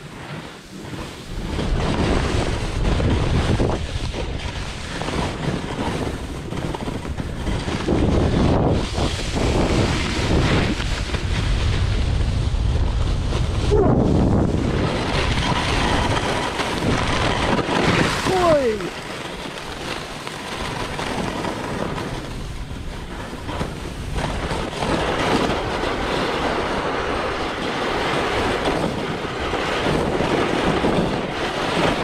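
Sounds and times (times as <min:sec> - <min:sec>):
skis scraping over hard snow: 0:00.0 - 0:32.0
wind buffeting microphone: 0:00.0 - 0:32.0.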